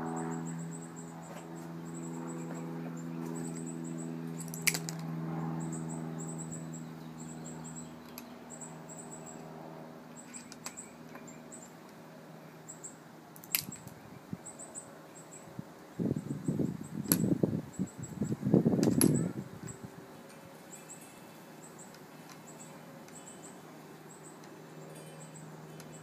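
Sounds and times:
distant engine hum: 0:00.0 - 0:26.0.

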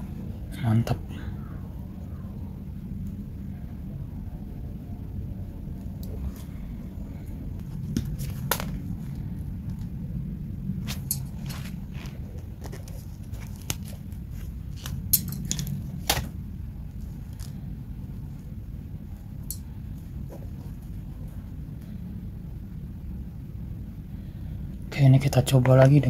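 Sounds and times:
low background rumble: 0:00.0 - 0:26.0
small tools and wire clicking: 0:10.9 - 0:16.3, 0:19.4 - 0:19.7.

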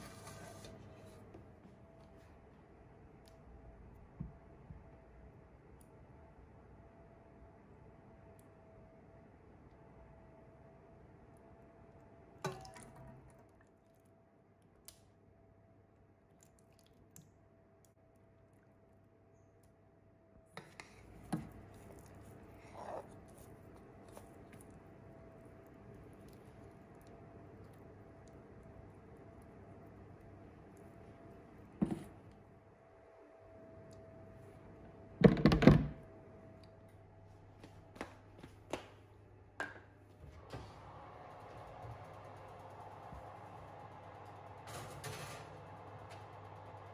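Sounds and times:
faint steady hum: 0:00.0 - 0:46.9.

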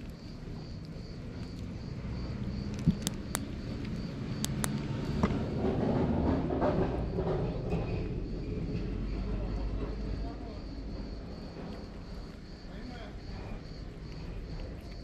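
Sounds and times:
cat crunching dry kibble: 0:00.0 - 0:05.2, 0:11.3 - 0:15.0.

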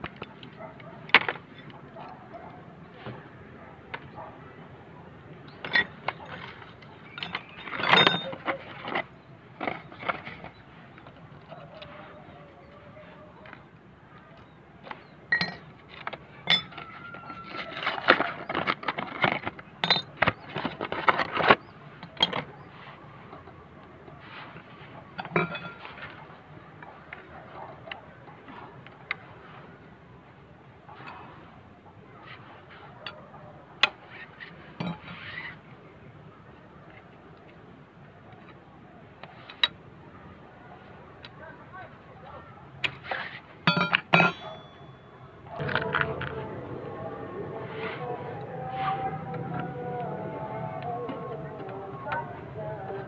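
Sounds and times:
metal tools clinking: 0:05.5 - 0:09.0, 0:15.3 - 0:21.5, 0:25.1 - 0:26.2, 0:34.8 - 0:35.4, 0:43.6 - 0:46.0.

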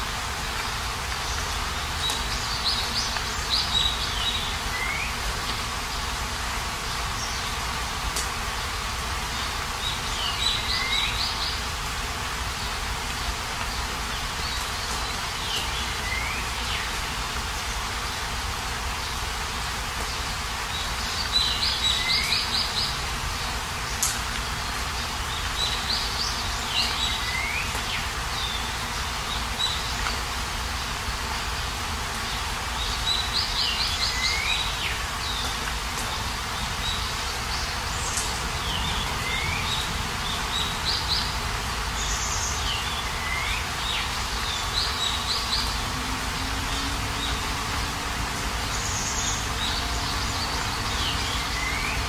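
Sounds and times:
steady rain falling: 0:00.0 - 0:52.0
songbird calling: 0:01.2 - 0:06.1, 0:09.3 - 0:11.8, 0:12.6 - 0:17.0, 0:20.0 - 0:30.2, 0:32.8 - 0:52.0.

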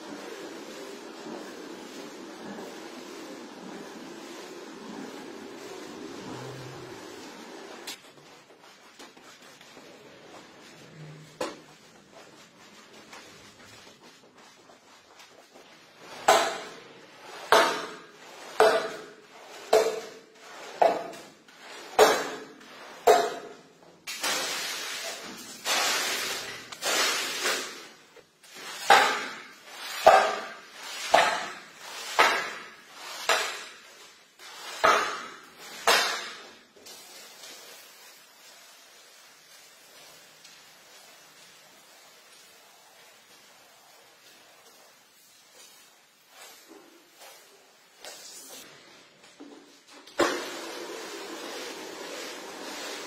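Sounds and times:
squeegee strokes on rug: 0:00.0 - 0:16.2, 0:36.8 - 0:48.9.

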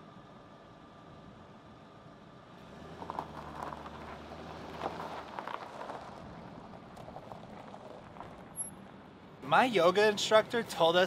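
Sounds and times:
car engine pulling away: 0:01.2 - 0:09.4
tyres crunching over gravel: 0:02.6 - 0:11.0.

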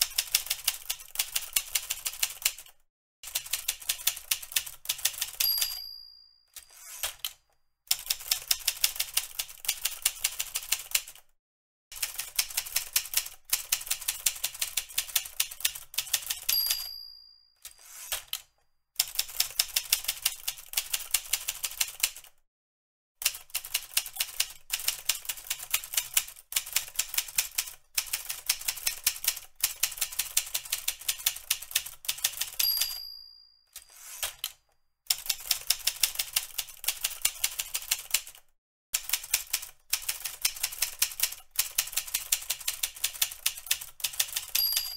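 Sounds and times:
typewriter bell ringing: 0:05.0 - 0:07.2, 0:16.1 - 0:18.3, 0:32.2 - 0:34.5, 0:44.2 - 0:44.9
typewriter carriage return: 0:06.6 - 0:07.4, 0:17.6 - 0:18.5, 0:33.7 - 0:34.6.

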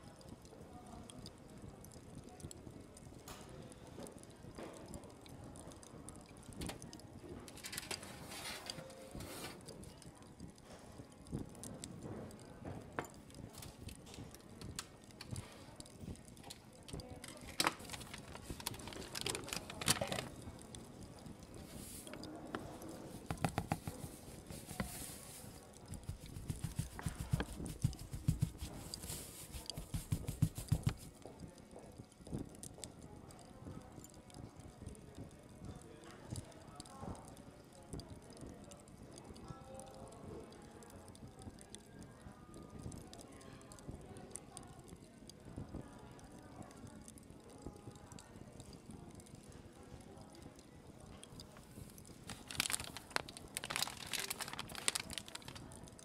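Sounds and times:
light taps and clicks: 0:11.2 - 0:35.0
soft knocks and clicks: 0:22.6 - 0:25.0.

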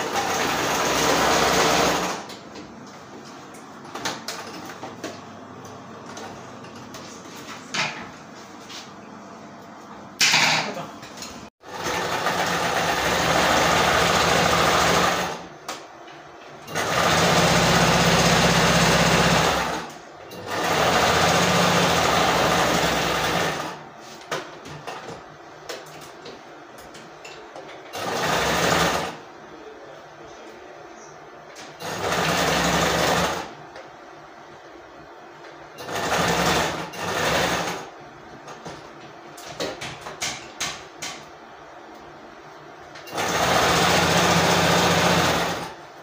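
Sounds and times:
sewing machine stitching: 0:00.0 - 0:02.3, 0:11.6 - 0:15.5, 0:16.7 - 0:23.8, 0:27.9 - 0:29.2, 0:31.8 - 0:33.5, 0:35.8 - 0:37.9, 0:43.1 - 0:45.8.

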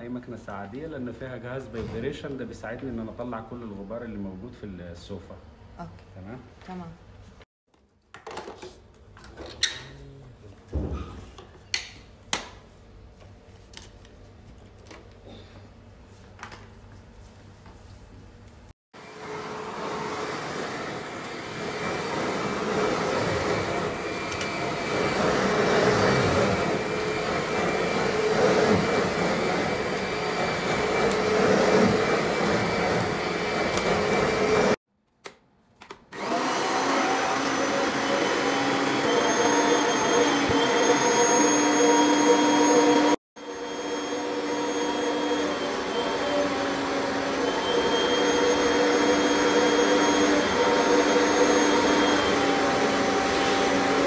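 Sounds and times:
high vacuum whine: 0:19.0 - 0:34.8, 0:36.2 - 0:54.0
upholstery vacuum motor: 0:19.0 - 0:34.8, 0:36.2 - 0:54.0.

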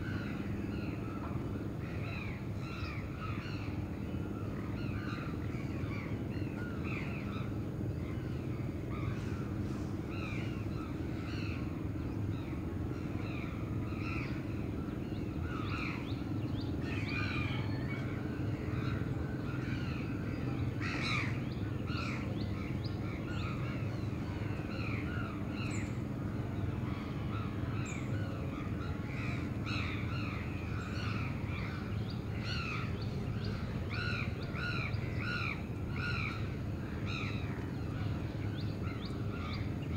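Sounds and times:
low hum of city traffic: 0:00.0 - 0:39.9.

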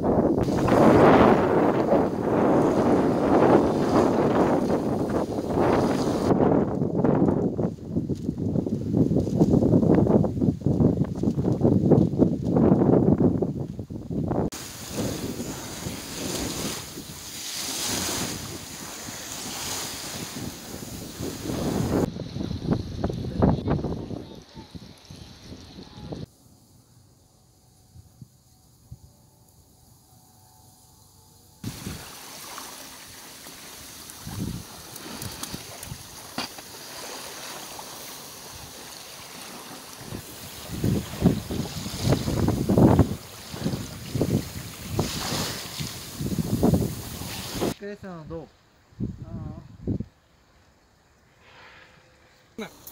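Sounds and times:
wind blowing over microphone: 0:00.0 - 0:26.3, 0:31.6 - 0:50.1
lake water: 0:00.0 - 0:27.9, 0:29.5 - 0:52.9
small waves breaking: 0:00.4 - 0:06.6, 0:14.5 - 0:26.3, 0:31.6 - 0:47.8.

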